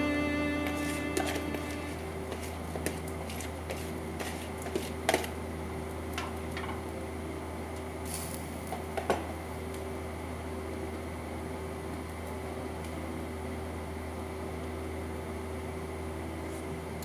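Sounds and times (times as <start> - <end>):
steady low hum: 0.0 - 6.2.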